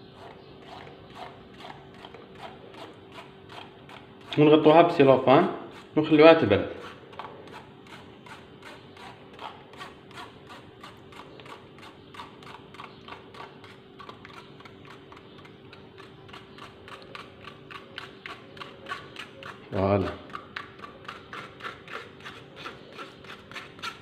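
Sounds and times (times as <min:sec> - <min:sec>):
metal spoon scraping a mesh strainer: 0:16.3 - 0:24.0.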